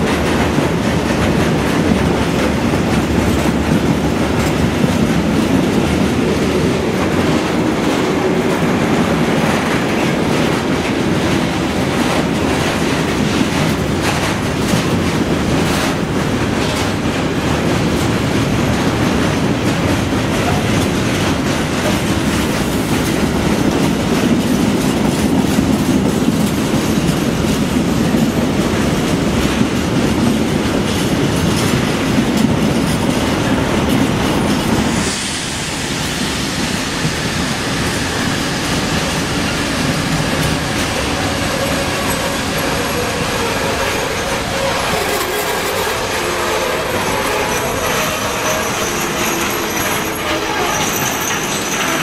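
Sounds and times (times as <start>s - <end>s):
train wheels rumbling on rails: 0.0s - 52.0s
wheels squealing: 40.3s - 52.0s.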